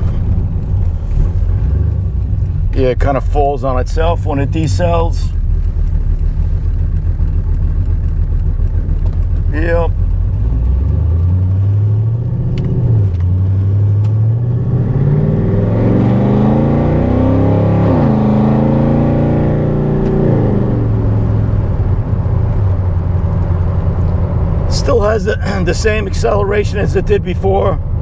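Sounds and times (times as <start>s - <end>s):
car engine accelerating through gears: 3.9s - 25.6s.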